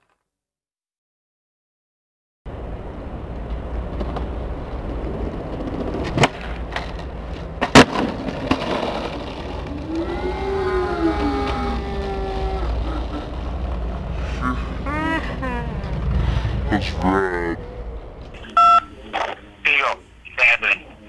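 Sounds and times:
skateboard wheels rolling on pavement: 2.5 - 14.4
skateboard cracking on ground: 3.9 - 10.0
rising and falling droning tone: 9.4 - 18.4.

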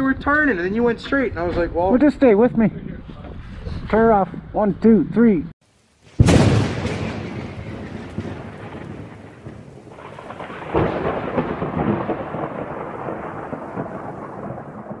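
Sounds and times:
rain falling: 5.6 - 15.0
rolling thunder: 6.2 - 15.0.

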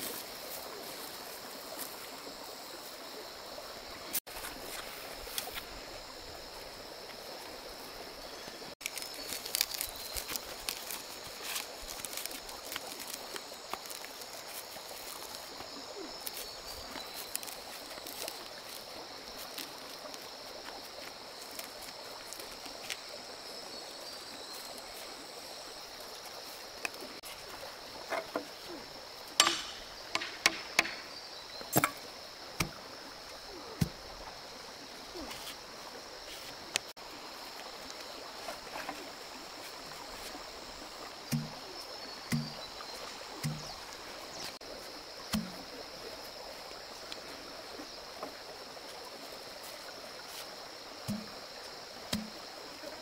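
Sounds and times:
sharp knocks and snaps: 29.4 - 31.1.

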